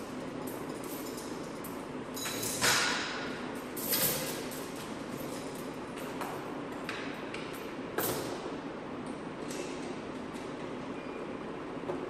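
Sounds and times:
steady background hum: 0.0 - 12.0
metal clinks ringing: 0.4 - 6.9.

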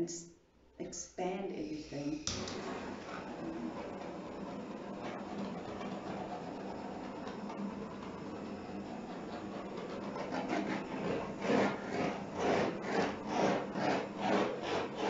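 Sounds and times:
rhythmic rasping rub: 8.8 - 15.0.

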